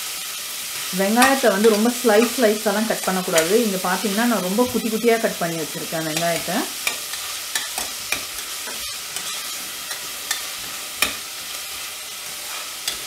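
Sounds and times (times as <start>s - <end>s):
onions sizzling in hot oil: 0.0s - 13.0s
ladle clicking and scraping pot: 6.2s - 11.3s.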